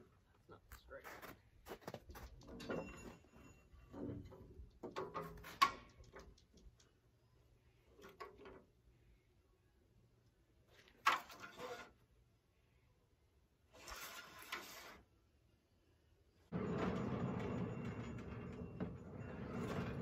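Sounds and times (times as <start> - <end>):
metal carriage scraping slide: 11.1 - 12.0, 13.8 - 15.1, 16.5 - 20.0.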